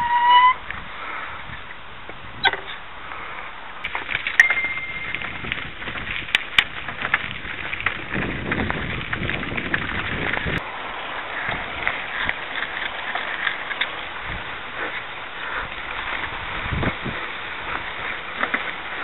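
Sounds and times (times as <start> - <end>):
bicycle tyres on gravel: 0.0 - 19.0
bike rattling: 0.0 - 19.0
short high steady tone: 4.4 - 5.2.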